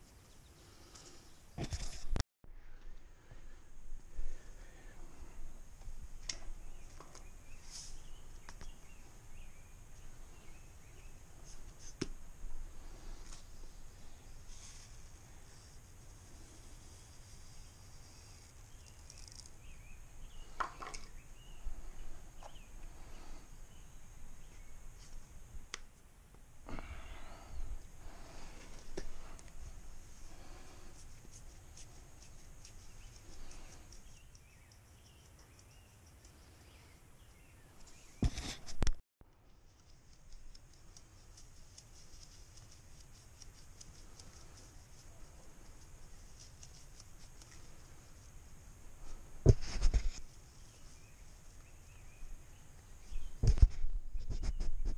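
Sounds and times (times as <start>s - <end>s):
small birds chirping: 0.0s - 1.6s, 4.3s - 25.8s, 26.6s - 38.5s, 39.3s - 54.9s.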